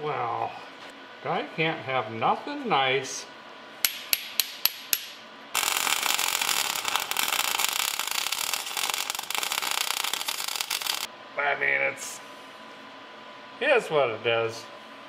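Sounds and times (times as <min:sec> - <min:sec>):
welding arc snaps: 0:03.8 - 0:11.1
arc welding crackling: 0:04.1 - 0:11.1.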